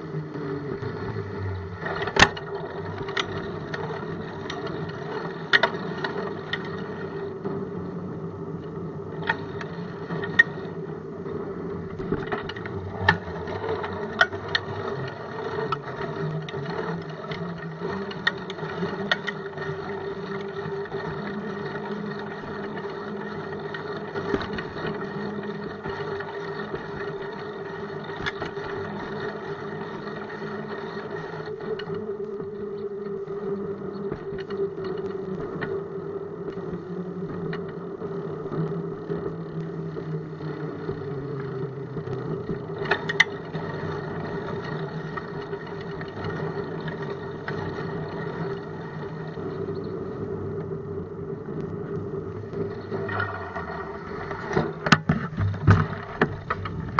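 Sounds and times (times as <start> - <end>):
bicycle mechanical hum: 0.0 - 56.9
bike knocking over bumps: 54.5 - 56.9.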